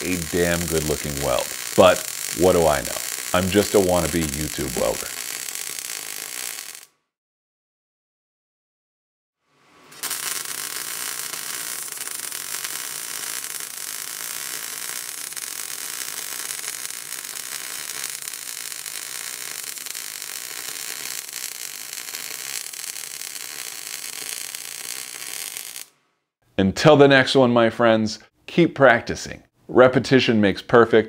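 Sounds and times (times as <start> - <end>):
welding arc crackling and hissing: 0.0 - 6.9, 9.9 - 26.0.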